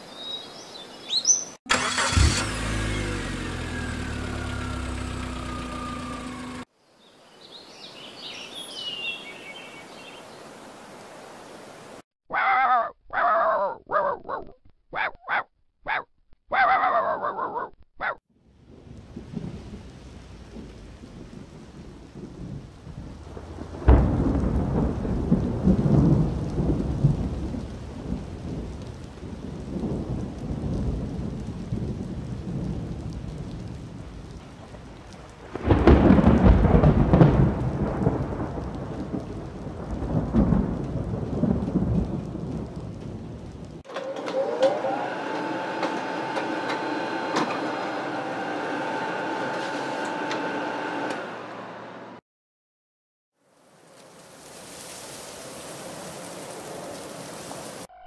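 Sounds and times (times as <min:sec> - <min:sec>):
steady rain: 0:01.7 - 0:06.7, 0:07.7 - 0:12.0, 0:18.4 - 0:51.9, 0:53.4 - 0:57.9
thunder claps rumbling: 0:18.6 - 0:43.9.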